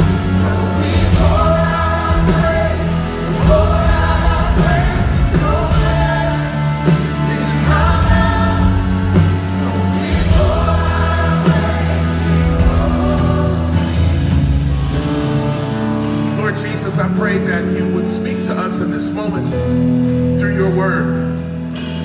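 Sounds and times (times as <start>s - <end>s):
voices singing together: 0.0s - 14.6s
church band worship music: 0.0s - 22.0s.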